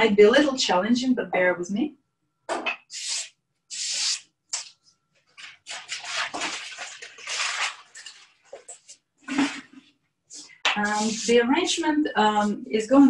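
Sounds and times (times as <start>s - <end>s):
materials rustling and crinkling: 5.2s - 9.8s.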